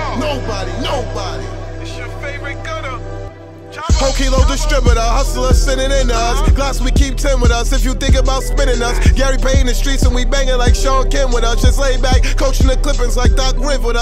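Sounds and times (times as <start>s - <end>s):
rapping over a beat: 0.0s - 14.0s
deep bass hits: 3.9s - 14.0s.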